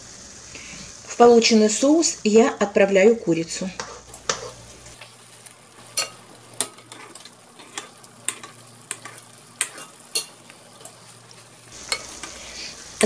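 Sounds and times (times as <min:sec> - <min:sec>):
sauce sizzling in a frying pan: 0:00.0 - 0:13.0
spoon tapping against pan: 0:07.8 - 0:10.4.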